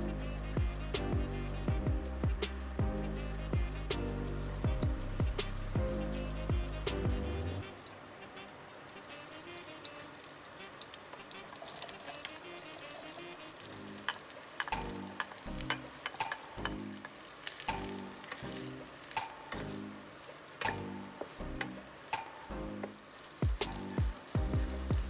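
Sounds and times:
background music with a beat: 0.0s - 7.7s, 17.7s - 20.0s, 20.6s - 25.0s
corn sizzling in butter: 4.0s - 25.0s.

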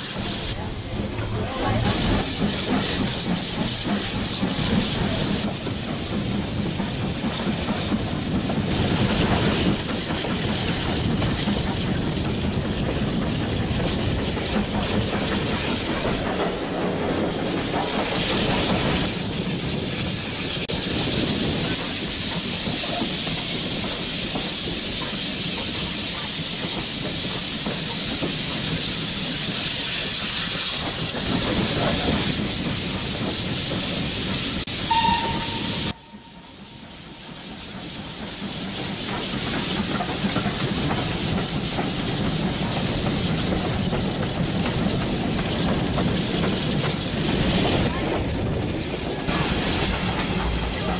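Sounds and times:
steam train rumble and hiss: 0.0s - 50.9s
locomotive whistle toot: 34.8s - 37.0s.

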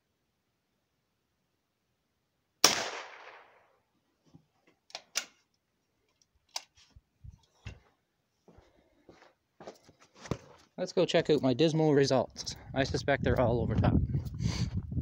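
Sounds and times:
rifle shot crack: 2.6s - 3.7s.

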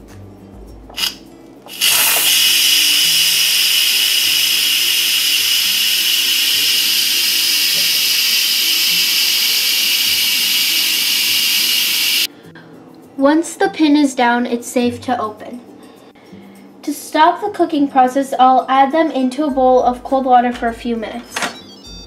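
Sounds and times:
steam venting hiss: 0.9s - 12.3s
valve click: 0.9s - 12.3s.

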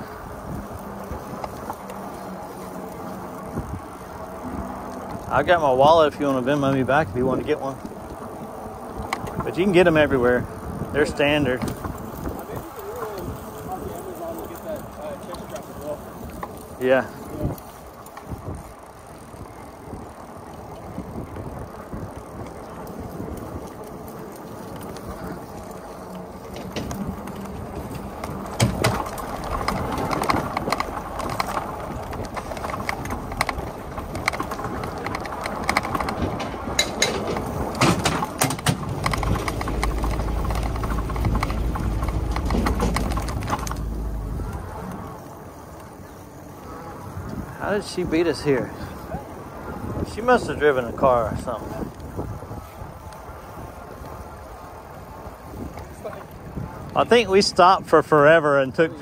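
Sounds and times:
sharp clicks and rattles: 0.0s - 46.2s
wind rumble on microphone: 0.0s - 59.0s.

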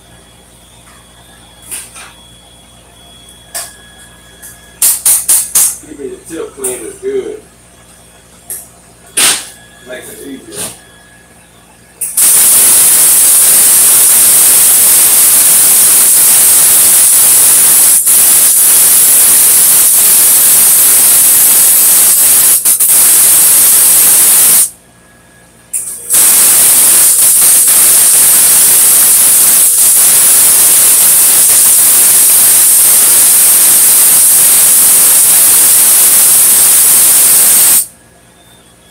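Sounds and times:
welding arc hissing: 4.8s - 5.8s, 12.0s - 24.8s, 25.8s - 37.9s.

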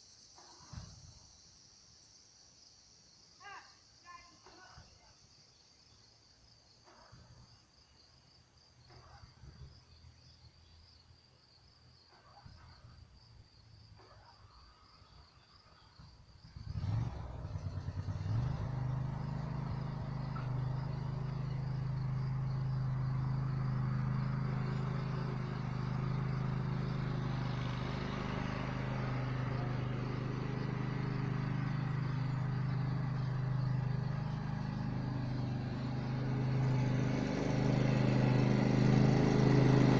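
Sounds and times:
crickets chirping: 0.0s - 39.9s
lawn mower engine starting: 16.7s - 39.9s.

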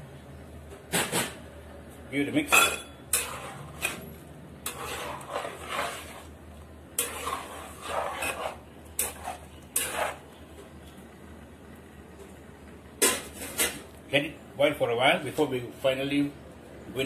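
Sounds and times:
curry boiling: 2.2s - 14.3s
spoon scraping metal pot: 2.6s - 4.0s, 4.6s - 6.4s, 7.0s - 10.3s.

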